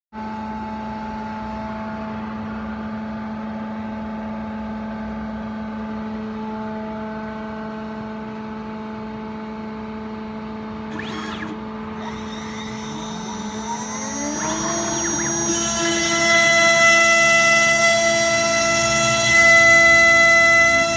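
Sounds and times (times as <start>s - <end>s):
router spindle whine: 10.8s - 20.9s
rising machine tones: 10.9s - 20.9s.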